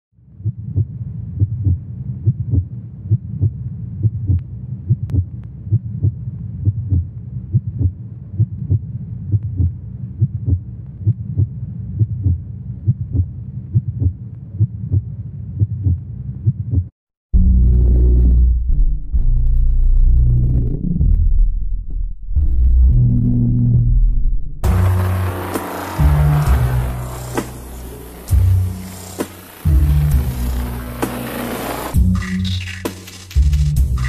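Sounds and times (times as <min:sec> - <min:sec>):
heartbeat double thumps: 0:00.4 - 0:17.0
low steady drone: 0:24.6 - 0:32.4.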